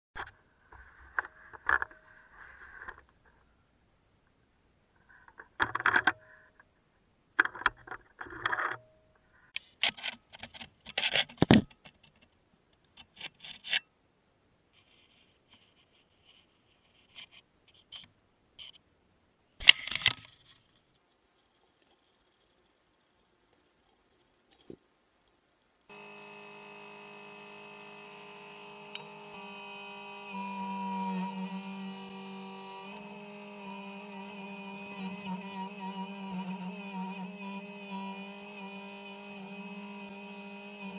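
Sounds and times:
mini excavator whining: 0:25.9 - 0:40.9.

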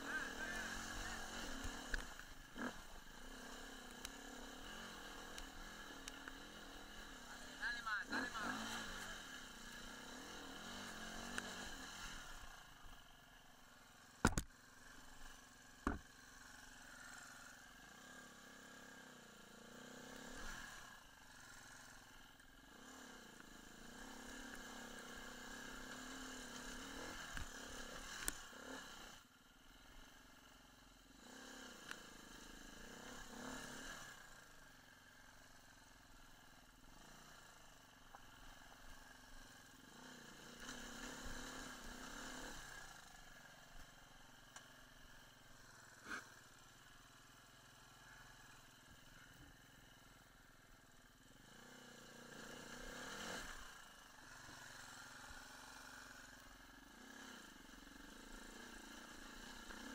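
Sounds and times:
dirt bike engine revving: 0:00.0 - 0:13.0, 0:14.0 - 0:29.2, 0:31.2 - 0:34.5, 0:36.8 - 0:43.7, 0:45.7 - 0:46.5, 0:51.3 - 0:59.9.

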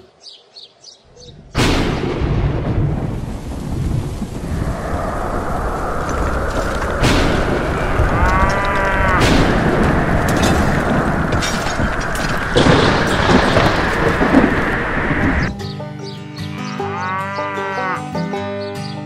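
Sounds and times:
rolling thunder rumble: 0:01.3 - 0:15.5
thunderclap: 0:01.4 - 0:15.5
rain-like hiss: 0:01.6 - 0:15.5.

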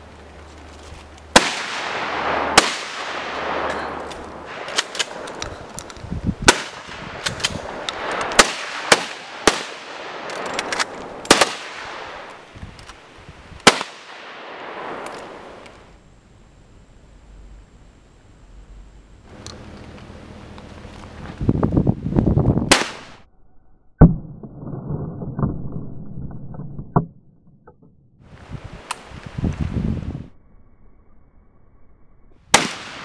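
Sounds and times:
gunshots with rolling echo: 0:01.3 - 0:05.5, 0:06.4 - 0:12.5, 0:13.6 - 0:15.6, 0:22.7 - 0:23.2, 0:32.5 - 0:33.0.

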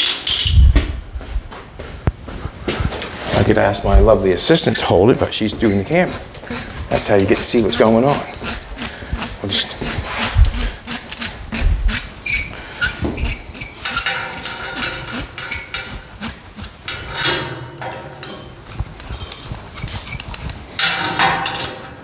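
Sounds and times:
metal clamp clanking on pipe: 0:12.8 - 0:16.1, 0:16.9 - 0:19.5, 0:20.1 - 0:22.0.

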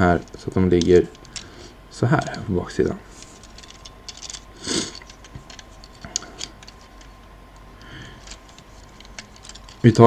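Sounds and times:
plastic toy parts clicking: 0:00.2 - 0:01.5, 0:03.2 - 0:07.1, 0:07.8 - 0:10.0.

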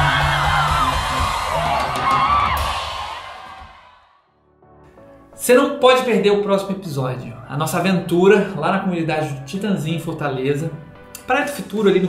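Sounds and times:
people whooping and shouting: 0:00.0 - 0:04.0
music: 0:00.0 - 0:12.0.

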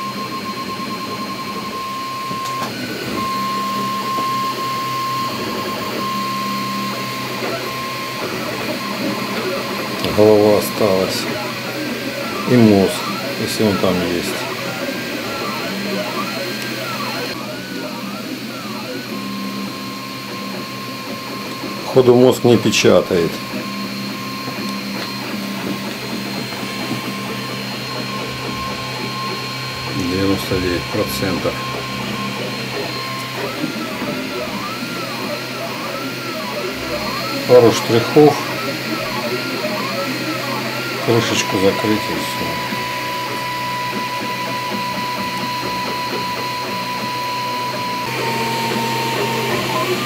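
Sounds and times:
high steady whine: 0:00.0 - 0:50.0
printer motors humming: 0:00.0 - 0:50.0.

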